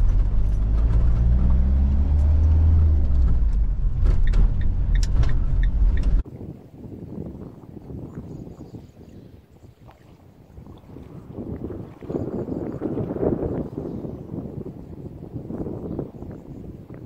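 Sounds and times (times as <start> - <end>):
van engine and road rumble: 0.0 - 6.3
wind noise: 0.0 - 17.0.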